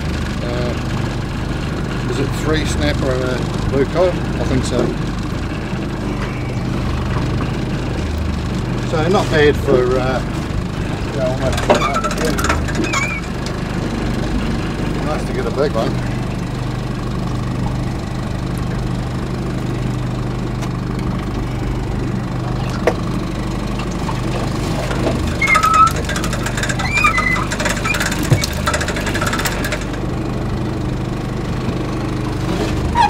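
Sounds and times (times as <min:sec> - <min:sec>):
boat engine idling: 0:00.0 - 0:33.0
light clicks and rattles: 0:11.3 - 0:13.6, 0:24.9 - 0:30.0.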